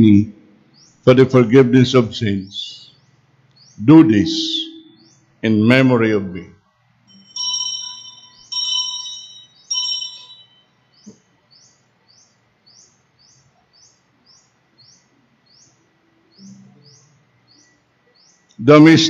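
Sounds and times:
altar bells ringing: 7.1s - 11.0s
bird chirping faintly: 9.4s - 19.0s.

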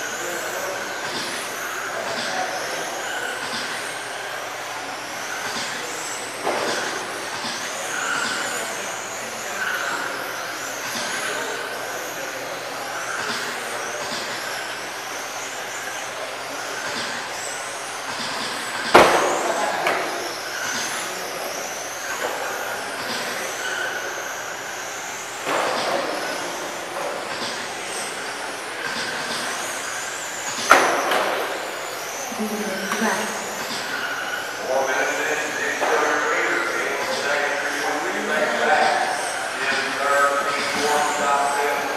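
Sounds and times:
electric rc car motors whining: 0.0s - 41.9s.

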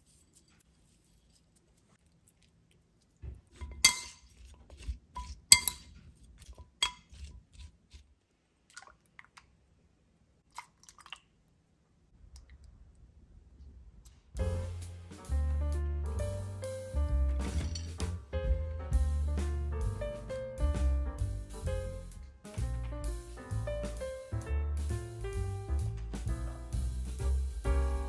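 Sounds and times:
porcelain bowl clinking: 3.6s - 4.3s, 5.2s - 6.0s, 6.6s - 7.1s
music: 14.4s - 28.0s.

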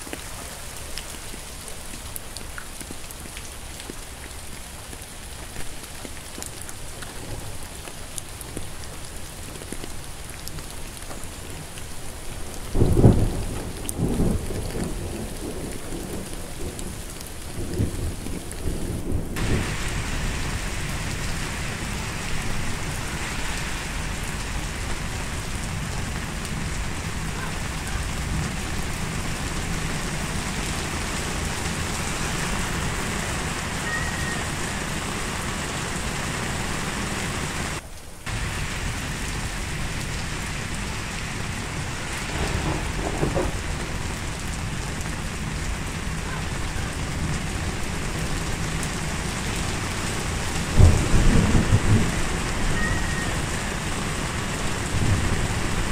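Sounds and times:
heavy rain on pavement: 0.0s - 55.9s
low thunder rumble: 12.8s - 48.4s, 50.4s - 55.9s.

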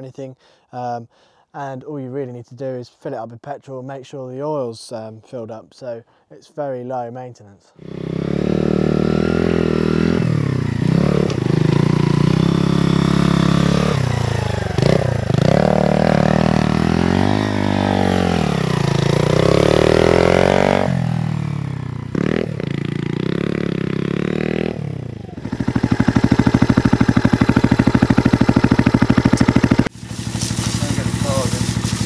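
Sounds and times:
motorcycle engine revving: 7.8s - 32.0s.

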